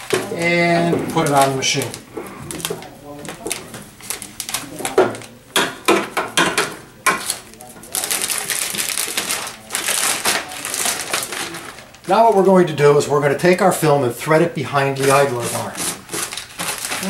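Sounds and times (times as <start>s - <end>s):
plastic film crinkling: 0.0s - 5.6s, 7.0s - 17.0s.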